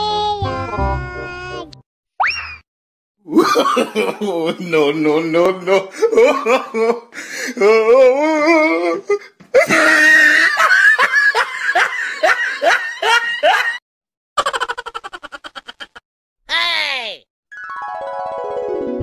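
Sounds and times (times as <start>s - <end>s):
person laughing: 3.3s - 13.8s, 14.4s - 16.0s
fast chattering giggle: 14.4s - 16.0s.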